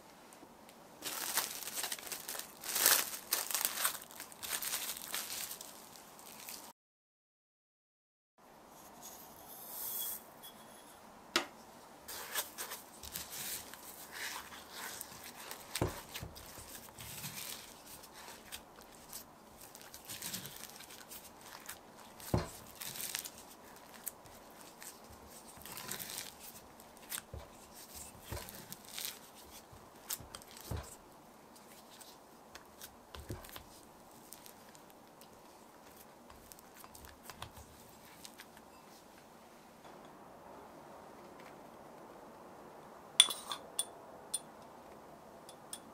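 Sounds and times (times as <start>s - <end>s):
sticky dough tearing and squelching: 13.0s - 31.0s.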